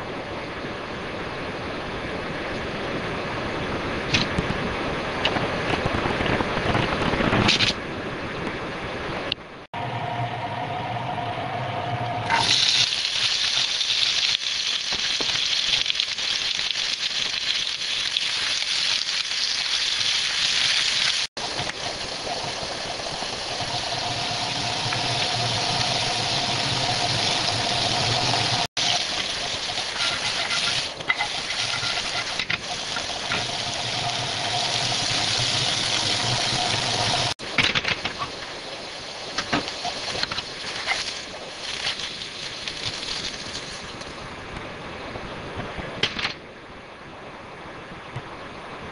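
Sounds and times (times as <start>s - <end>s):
low hum: 0.0s - 13.2s, 21.4s - 37.4s
potato sticks sizzling in oil: 12.2s - 37.4s.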